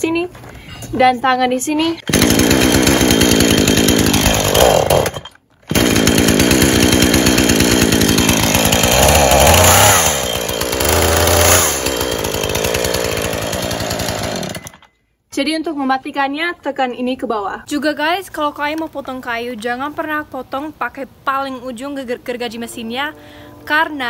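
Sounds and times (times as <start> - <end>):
chainsaw engine running: 2.0 - 14.9.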